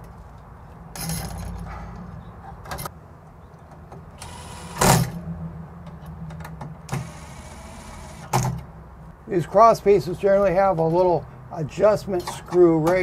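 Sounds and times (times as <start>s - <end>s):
cordless impact driver bursts: 4.2s - 5.2s, 6.9s - 8.3s.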